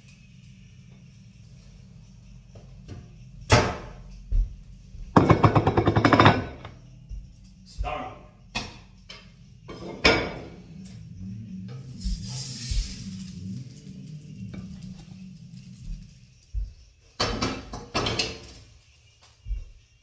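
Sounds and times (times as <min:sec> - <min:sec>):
plate rattling on counter: 0:05.2 - 0:06.7
kitchenware knocks: 0:05.2 - 0:06.8, 0:17.2 - 0:18.4.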